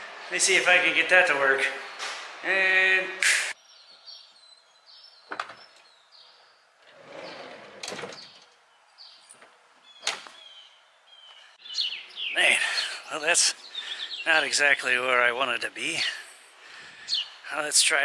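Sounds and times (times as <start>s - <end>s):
birds chirping faintly: 3.5s - 18.0s
sliding van door rolling open: 6.9s - 8.4s.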